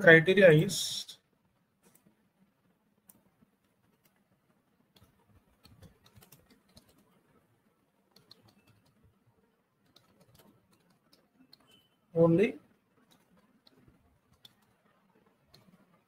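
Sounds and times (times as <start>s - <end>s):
faint keyboard typing: 1.4s - 16.0s.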